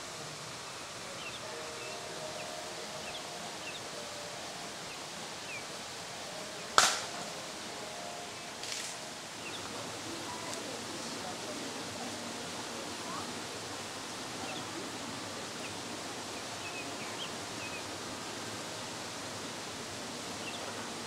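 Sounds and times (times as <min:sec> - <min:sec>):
steady background hiss: 0:00.0 - 0:21.0
sharp knock: 0:06.8 - 0:07.1.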